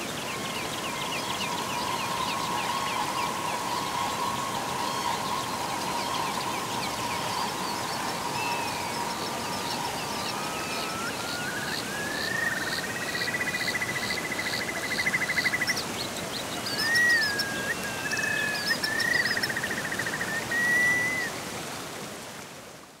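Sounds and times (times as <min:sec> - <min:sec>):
whistled bird calls: 0:00.0 - 0:15.9, 0:16.5 - 0:21.4
birds chirping: 0:00.0 - 0:21.3
stream water running: 0:00.0 - 0:23.0
bird trilling: 0:00.9 - 0:12.8.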